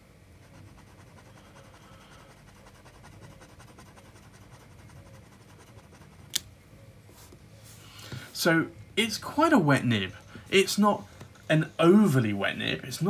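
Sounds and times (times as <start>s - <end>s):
pen nib scratching on paper: 0.4s - 6.4s.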